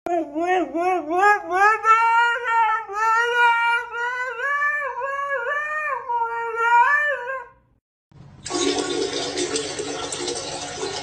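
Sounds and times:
dog howling: 0.1 - 7.6.

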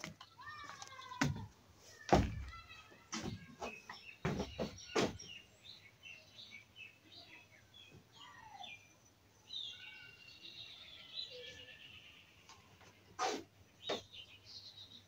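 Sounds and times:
birds chirping: 0.0 - 15.0
sharp knocks: 2.1 - 2.5.

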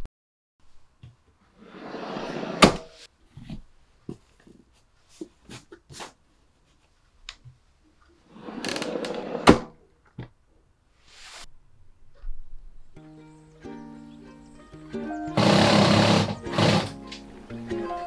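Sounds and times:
drawer sliding shut: 1.6 - 3.0, 8.3 - 9.8
drawer closing knock: 2.5 - 2.9.

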